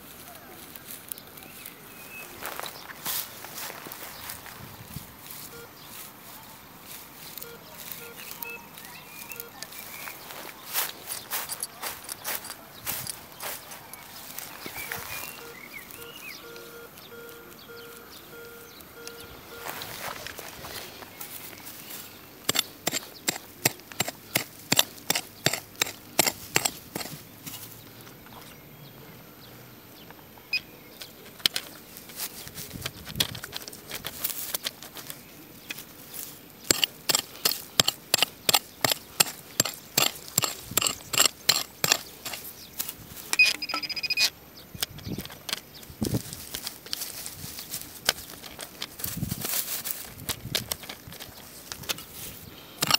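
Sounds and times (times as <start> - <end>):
dry grass crackling underfoot: 0.0 - 28.5, 30.8 - 52.9
short high beep: 5.5 - 5.7, 7.4 - 9.6, 14.8 - 19.8, 43.4 - 44.2.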